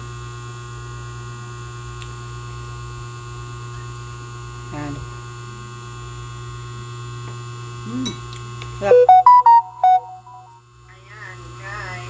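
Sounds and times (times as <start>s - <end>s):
short electronic notes: 8.8s - 10.6s.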